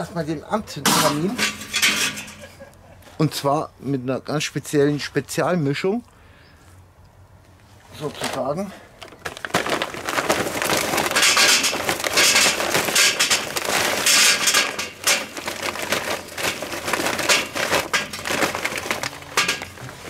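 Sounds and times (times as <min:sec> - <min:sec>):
charcoal briquettes clattering into metal: 0:00.0 - 0:02.7, 0:08.0 - 0:20.0.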